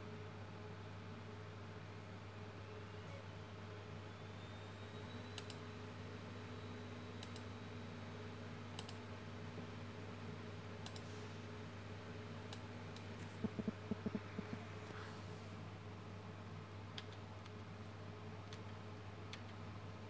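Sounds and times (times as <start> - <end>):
steady low hum: 0.0 - 16.8
computer mouse clicks: 5.4 - 5.6, 7.2 - 7.5, 8.8 - 9.0, 10.8 - 11.1, 12.5 - 14.7.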